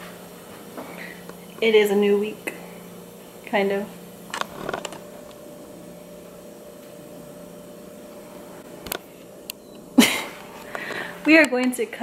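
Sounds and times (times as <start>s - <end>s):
refrigerator humming: 0.0s - 12.0s.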